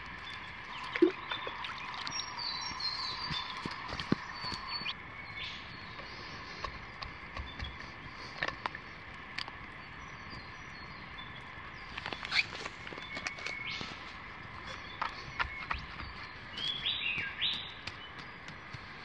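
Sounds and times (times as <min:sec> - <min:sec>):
birds calling: 0:00.0 - 0:19.0
clicks and rustles: 0:06.0 - 0:10.4, 0:11.9 - 0:19.0.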